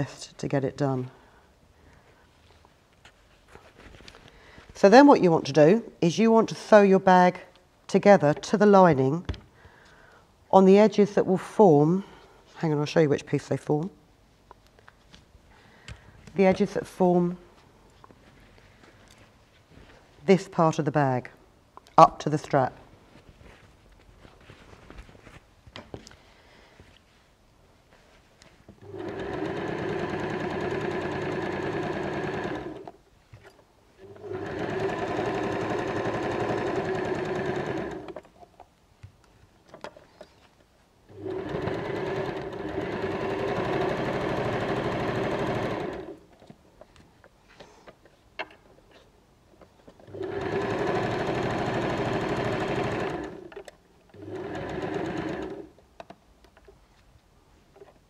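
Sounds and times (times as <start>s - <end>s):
sewing machine stitching: 28.8s - 33.0s, 34.0s - 38.2s, 41.1s - 46.3s, 50.0s - 55.8s.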